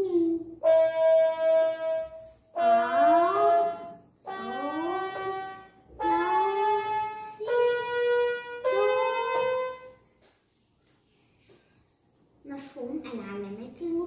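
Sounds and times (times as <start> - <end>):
toy keyboard notes: 0.6 - 9.9.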